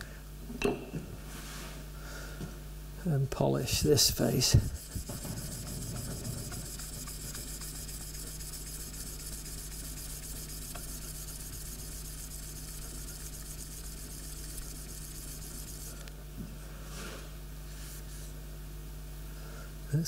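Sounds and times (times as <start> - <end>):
chisel rubbed on wet abrasive paper: 4.1 - 16.0.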